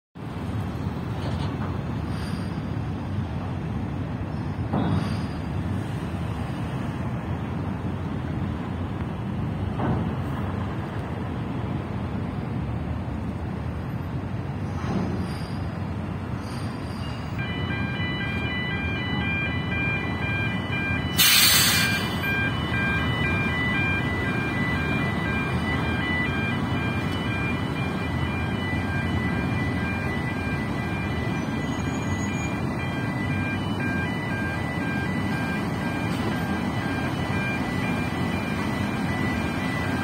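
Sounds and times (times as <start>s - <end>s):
ship engines rumbling: 0.2s - 40.0s
multi-tone warning beeps: 17.2s - 40.0s
loud hiss: 21.2s - 22.1s.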